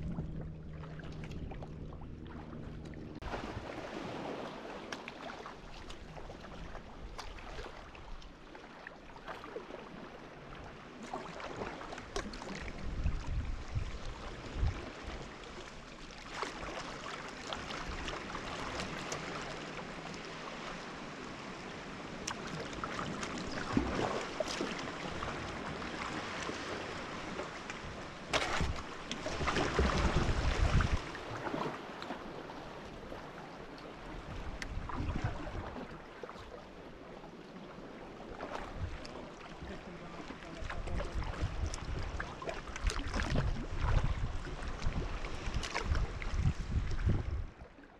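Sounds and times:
wind buffeting microphone: 0.0s - 4.4s, 12.6s - 15.2s, 27.9s - 31.6s, 40.8s - 47.6s
water splashing around paddle: 0.0s - 47.9s.

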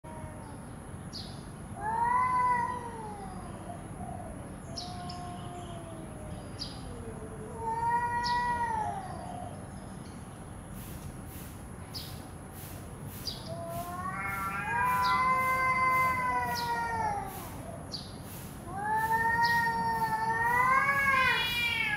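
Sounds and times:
cats yowling: 0.0s - 0.6s, 1.8s - 9.6s, 13.5s - 18.0s, 18.6s - 21.9s
low moaning cat yowl: 1.8s - 9.5s, 13.5s - 17.8s, 18.6s - 21.9s.

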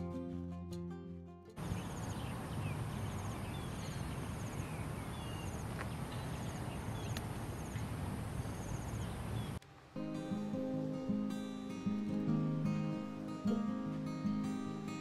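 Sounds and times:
bird chirps: 1.6s - 9.6s
insects chirping: 1.6s - 9.6s.

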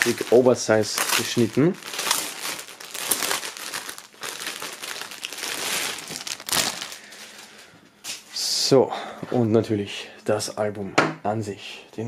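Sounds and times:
plastic sleeve crinkling: 0.0s - 7.7s.

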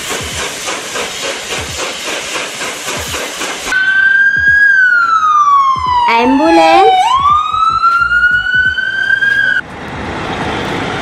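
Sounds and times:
train rushing and hissing: 0.0s - 4.2s, 9.0s - 11.0s
ambulance siren wailing: 3.8s - 9.6s.

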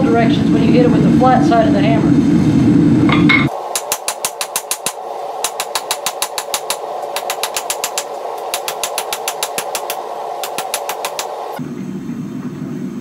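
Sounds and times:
forge burner roaring: 0.0s - 13.0s
hammer striking steel on anvil: 3.1s - 11.4s.

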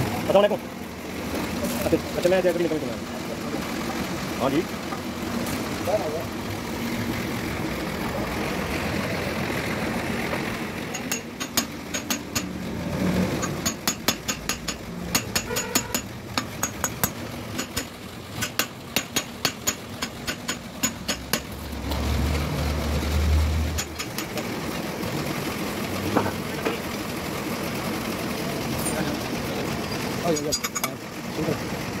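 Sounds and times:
hammer striking metal cover: 10.9s - 12.6s, 13.4s - 21.5s.

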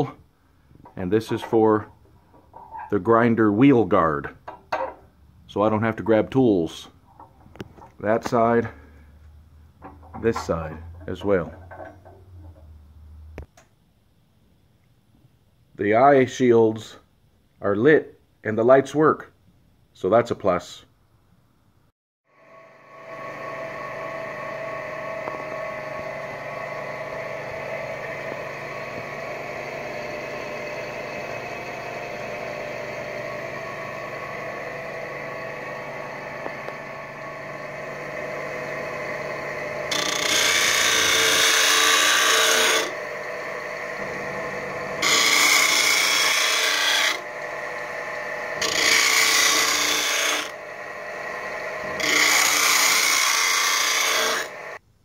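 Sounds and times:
steel grinding on abrasive wheel: 2.4s - 3.0s, 22.6s - 54.8s
grinder motor humming: 22.3s - 54.8s.

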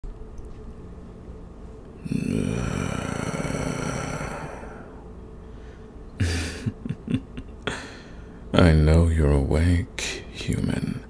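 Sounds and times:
breathy sigh: 2.0s - 6.6s, 7.6s - 8.4s.

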